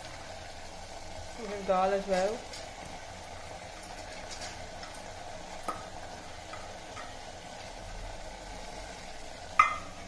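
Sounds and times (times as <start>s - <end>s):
food sizzling in a pot: 0.0s - 10.0s.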